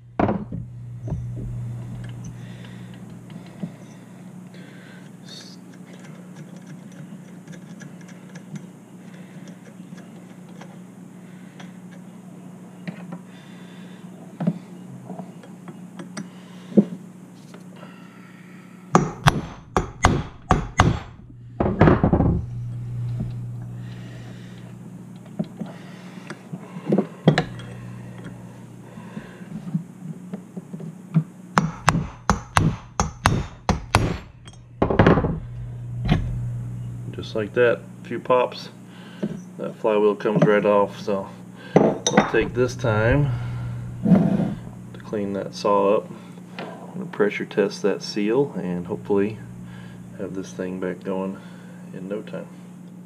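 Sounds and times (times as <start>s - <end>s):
hammer tapping metal punch: 31.6s - 35.3s.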